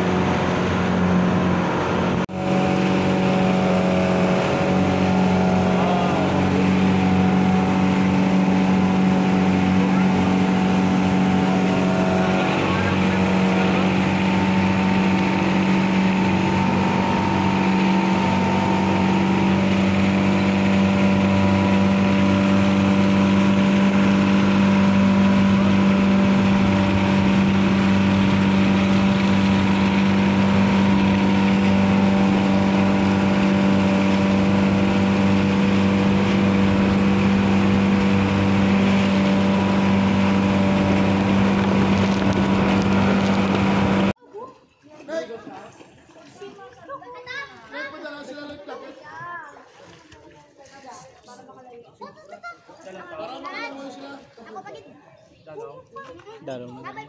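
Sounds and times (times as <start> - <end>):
boat engine droning: 0.0 - 44.2.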